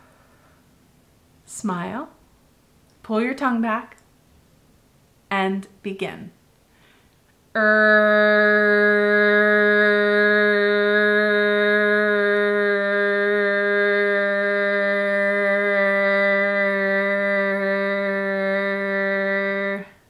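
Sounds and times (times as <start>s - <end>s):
woman holding long r sound: 7.5s - 20.0s.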